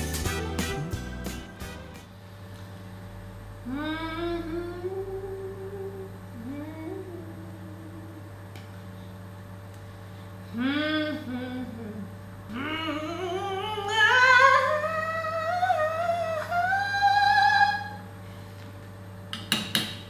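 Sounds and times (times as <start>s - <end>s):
woman singing opera-style: 3.6s - 8.3s, 10.5s - 18.1s.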